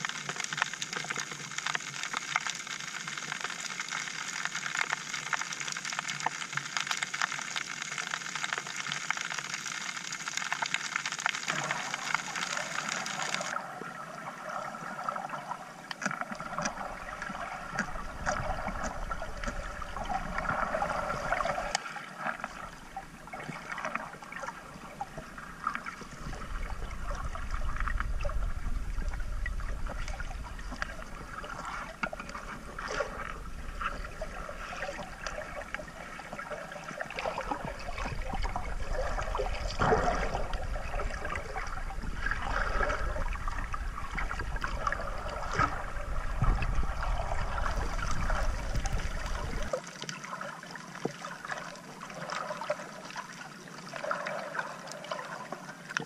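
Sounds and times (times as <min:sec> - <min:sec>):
crackling clicks: 0:00.0 - 0:13.6, 0:15.9 - 0:24.5, 0:25.2 - 0:49.8
muffled sloshing water: 0:16.0 - 0:56.0
low underwater rumble: 0:16.3 - 0:49.7.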